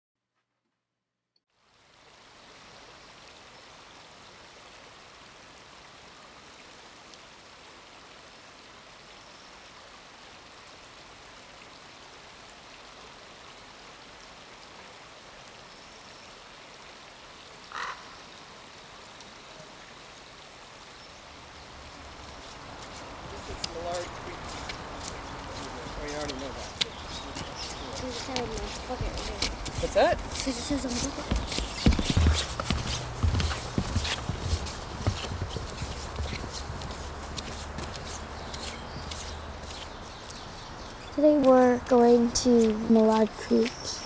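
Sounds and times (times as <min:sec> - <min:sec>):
steady nature ambience: 0:01.5 - 0:44.0
frogs calling: 0:17.7 - 0:18.3.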